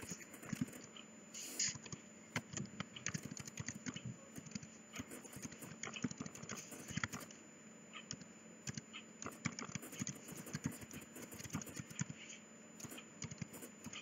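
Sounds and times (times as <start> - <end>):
faint keyboard typing: 0.0 - 7.4, 8.0 - 14.0.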